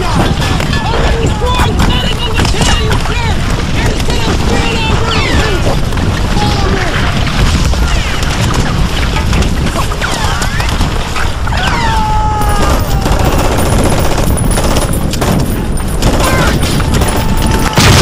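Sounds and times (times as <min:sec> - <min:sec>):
constant low rumble: 0:00.0 - 0:18.0
bike rattling and knocking: 0:12.6 - 0:17.8.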